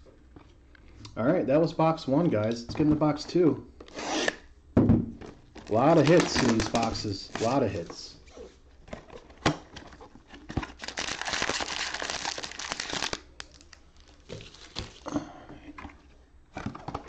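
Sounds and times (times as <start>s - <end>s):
box and packs clicking and knocking: 4.9s - 7.6s
plastic wrap crinkling and tearing: 5.6s - 7.8s, 10.4s - 15.1s.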